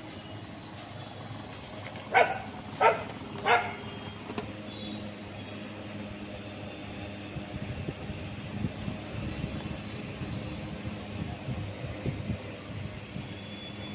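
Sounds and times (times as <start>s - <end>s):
low background hum: 0.0s - 13.9s
dog barking: 2.1s - 3.8s.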